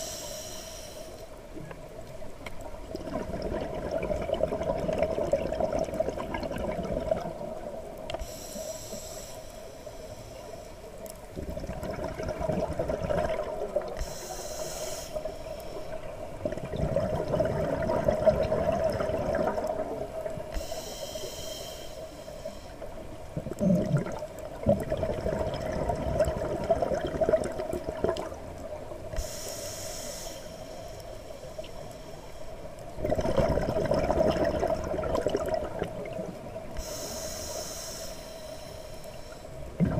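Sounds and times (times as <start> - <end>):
hissing regulator inhales: 0.0 - 1.4, 8.2 - 11.0, 13.8 - 16.1, 20.5 - 23.0, 29.1 - 32.8, 36.7 - 39.7
exhaled bubbles rushing: 2.8 - 7.6, 11.4 - 13.9, 16.4 - 20.3, 23.4 - 28.4, 33.0 - 36.4.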